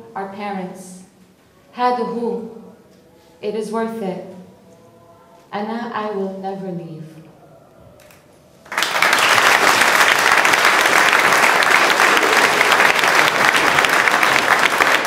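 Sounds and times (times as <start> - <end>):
audience applause: 8.7 - 15.0.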